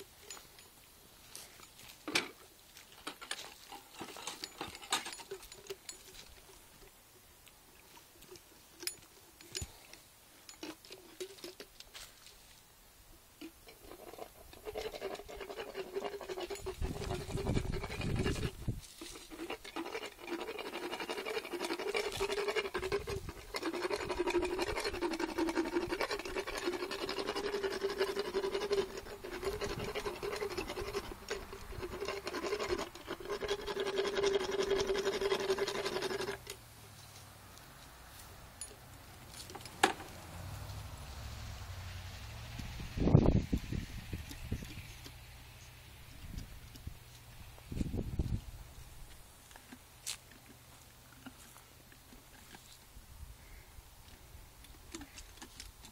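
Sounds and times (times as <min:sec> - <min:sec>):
rasping dental grinder: 0:19.2 - 0:36.5.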